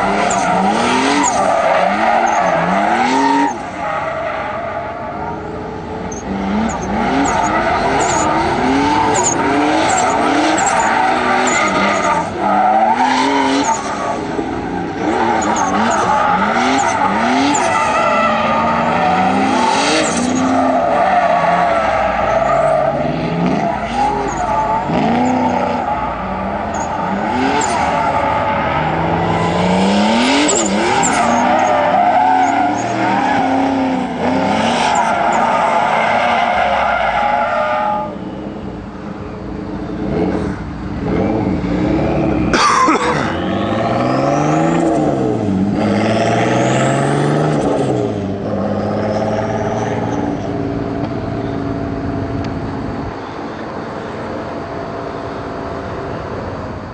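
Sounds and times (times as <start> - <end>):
tyres squealing: 0.0 - 4.9, 6.1 - 38.2
car engine revving: 0.0 - 38.9, 39.6 - 55.0.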